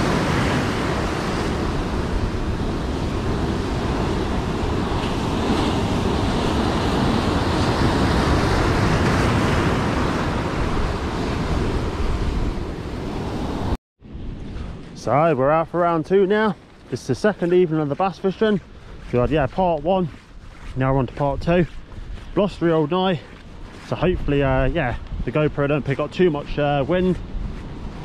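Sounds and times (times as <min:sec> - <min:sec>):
heavy surf on boulders: 0:00.0 - 0:13.8, 0:20.8 - 0:28.0
wind buffeting microphone: 0:00.0 - 0:15.6, 0:16.4 - 0:28.0.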